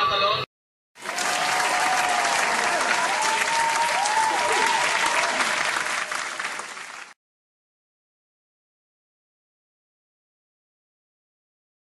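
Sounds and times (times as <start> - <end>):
crowd applauding: 1.0 - 7.2
crowd cheering: 1.0 - 7.2.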